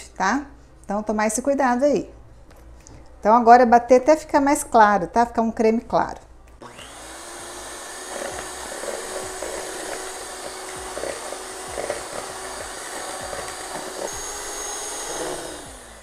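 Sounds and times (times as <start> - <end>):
electric mixer beating: 6.6 - 16.0.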